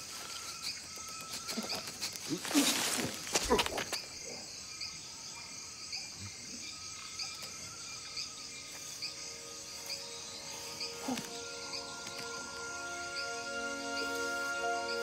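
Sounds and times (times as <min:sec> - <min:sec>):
insect chirping in high pulses: 0:00.0 - 0:15.0
soft insect trill: 0:00.0 - 0:15.0
soft music tones: 0:06.6 - 0:15.0.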